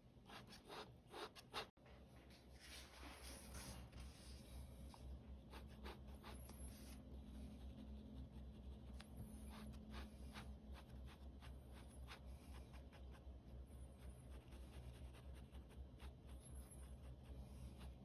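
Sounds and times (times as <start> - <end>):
low steady hum: 0.0 - 18.0
pen scratching on paper: 5.5 - 7.0.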